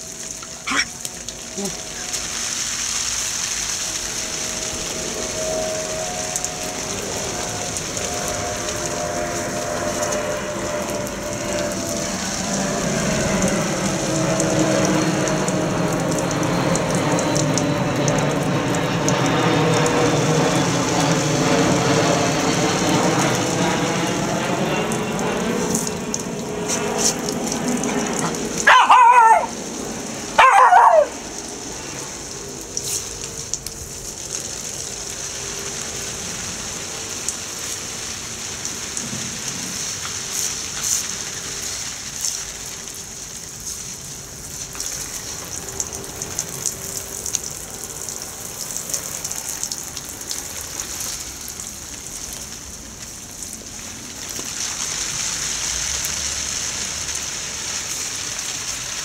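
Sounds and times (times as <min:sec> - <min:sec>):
sprinkler water jets spattering: 0:00.0 - 0:59.0
puppy barking: 0:28.2 - 0:29.6, 0:30.4 - 0:31.2.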